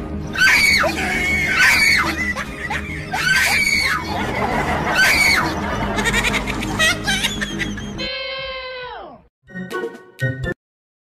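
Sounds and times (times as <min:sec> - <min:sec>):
background music: 0:00.0 - 0:10.6
high-pitched screams: 0:00.3 - 0:02.2, 0:03.1 - 0:04.1, 0:04.9 - 0:05.5.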